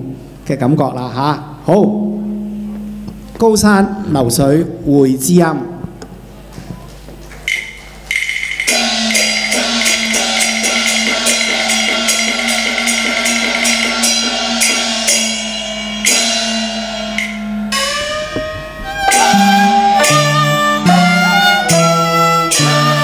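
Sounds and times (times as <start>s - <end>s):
sustained instrumental tones: 2.0s - 4.8s, 7.5s - 23.0s
drum strikes: 7.5s - 23.0s
wood block strikes: 7.5s - 23.0s
bowed strings sliding notes: 8.7s - 23.0s.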